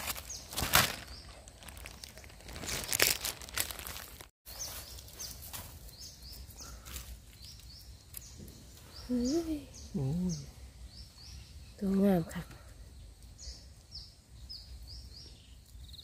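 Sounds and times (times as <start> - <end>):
net trap rustling and crackling: 0.0 - 4.3
bird chirping: 4.5 - 16.0.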